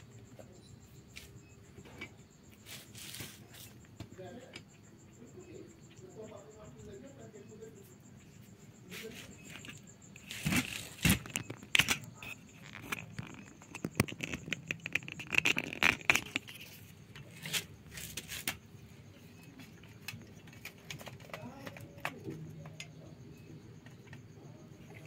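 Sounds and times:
cat chewing and crunching food: 0:08.9 - 0:18.6.

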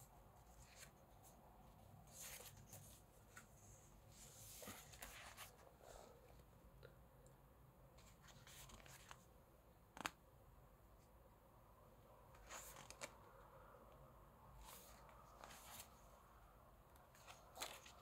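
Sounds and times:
pages rustling: 0:00.4 - 0:01.4, 0:02.0 - 0:05.8, 0:08.0 - 0:09.3, 0:12.3 - 0:13.3, 0:14.6 - 0:16.0, 0:17.0 - 0:18.0.

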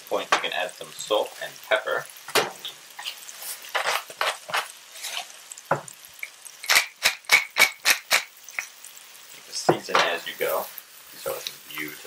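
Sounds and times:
oil popping and crackling: 0:00.0 - 0:12.0
vegetables sizzling in frying pan: 0:00.0 - 0:12.0.

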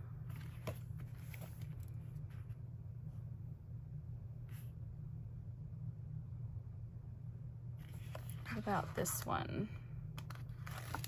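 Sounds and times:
steady low hum: 0:00.0 - 0:11.0
paper rustling: 0:00.3 - 0:02.5, 0:10.2 - 0:11.0.

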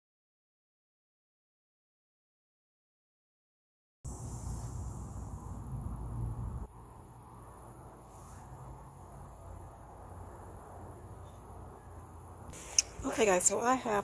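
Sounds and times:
low rumble on microphone: 0:04.1 - 0:06.7
high-pitched insect trill: 0:04.1 - 0:14.0.

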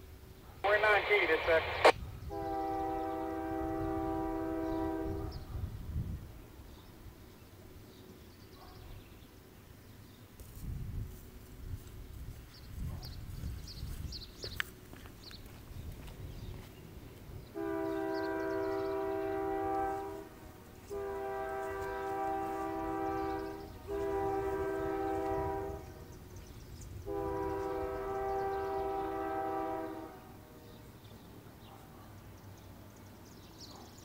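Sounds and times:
locomotive air horn blasts: 0:02.3 - 0:05.5, 0:17.5 - 0:26.1, 0:27.0 - 0:30.6.

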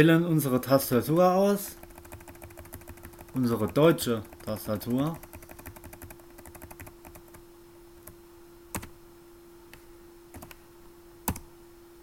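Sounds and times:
keyboard keys clicking: 0:01.8 - 0:07.4, 0:10.3 - 0:10.6.

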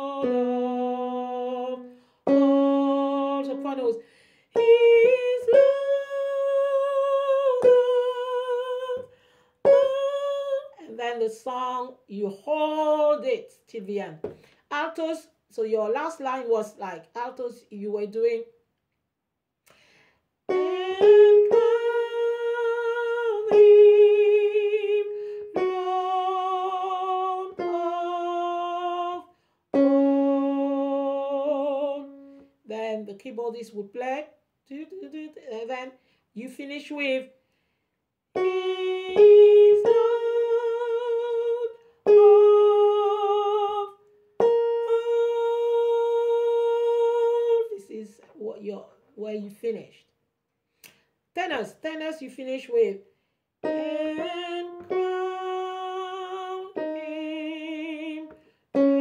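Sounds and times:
woman singing unaccompanied: 0:00.0 - 0:13.4, 0:20.5 - 0:33.3, 0:38.4 - 0:48.1, 0:53.6 - 0:59.0.

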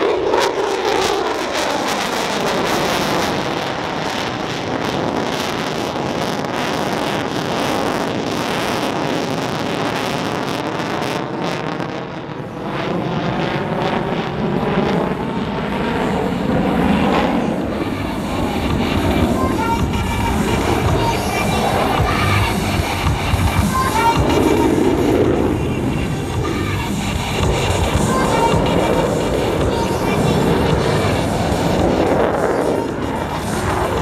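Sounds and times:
jet engine roar in afterburner: 0:00.0 - 0:34.0.

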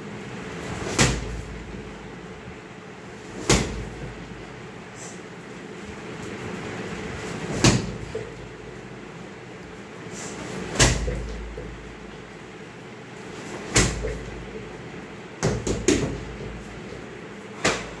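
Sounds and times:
kicks thudding on punching bag: 0:00.8 - 0:01.8, 0:03.3 - 0:04.4, 0:07.5 - 0:08.4, 0:10.6 - 0:11.8, 0:13.6 - 0:14.4, 0:15.4 - 0:16.7, 0:17.6 - 0:18.0.

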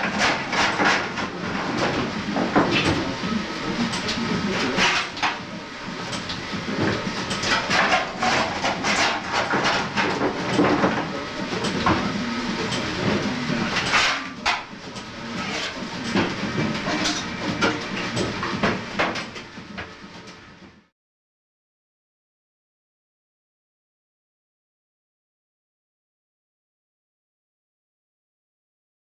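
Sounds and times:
coal shovel clanking and scraping: 0:00.0 - 0:03.2, 0:03.9 - 0:05.4, 0:06.1 - 0:12.0, 0:12.7 - 0:19.4
steam plant running: 0:00.0 - 0:20.4.

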